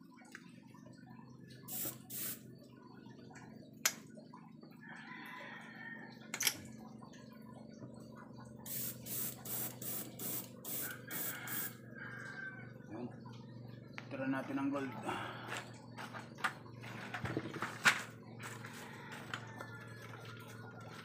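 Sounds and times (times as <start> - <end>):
air compressor humming: 1.7 - 2.4, 8.7 - 11.8
airbrush spraying hissing bursts: 1.7 - 2.4, 8.7 - 11.7.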